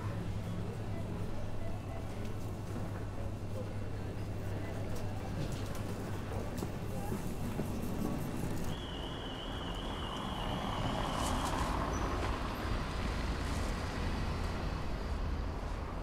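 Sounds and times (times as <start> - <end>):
road traffic rumbling: 8.7 - 16.0.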